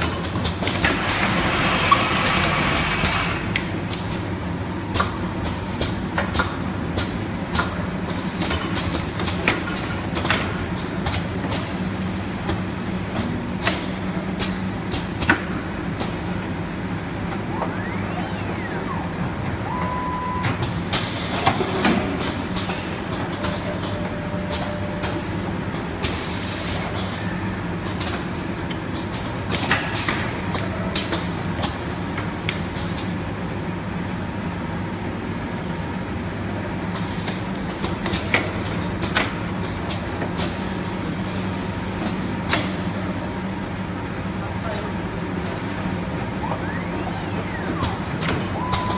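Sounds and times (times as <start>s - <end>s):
pneumatic actuator clicks and clacks: 4.9s - 11.7s, 12.4s - 16.2s, 36.9s - 40.6s, 42.0s - 42.9s
machine humming: 16.3s - 20.9s.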